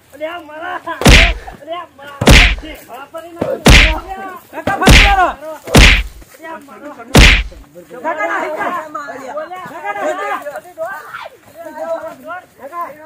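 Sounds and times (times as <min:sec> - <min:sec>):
cloth bundle whacking a person: 0:01.0 - 0:01.4, 0:02.2 - 0:02.7, 0:03.6 - 0:04.1, 0:04.7 - 0:06.2, 0:07.2 - 0:07.6.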